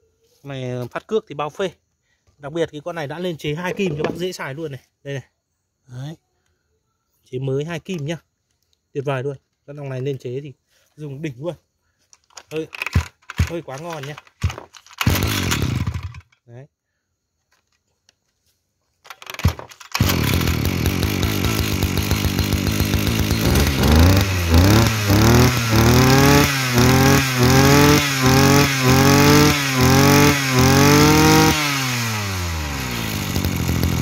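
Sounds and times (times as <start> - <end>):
brush cutter engine revving: 12.5 - 16.3, 19.1 - 34.0.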